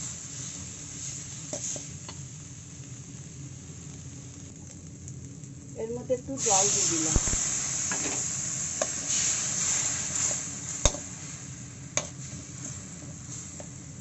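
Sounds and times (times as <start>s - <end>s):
spice paste sizzling in pan: 0.0s - 14.0s.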